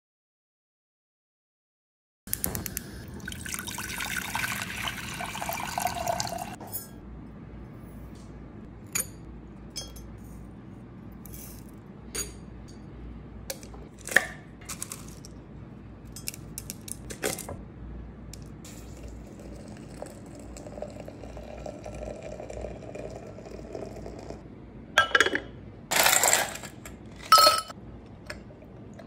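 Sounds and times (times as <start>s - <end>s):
water pouring into saucepan: 3.2s - 6.6s.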